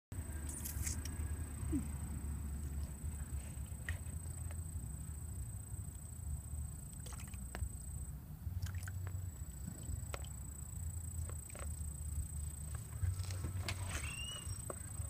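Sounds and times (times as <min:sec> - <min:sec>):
small splashes: 0:06.8 - 0:07.7, 0:08.5 - 0:09.3
water sloshing and dripping: 0:06.8 - 0:07.8, 0:08.6 - 0:10.5.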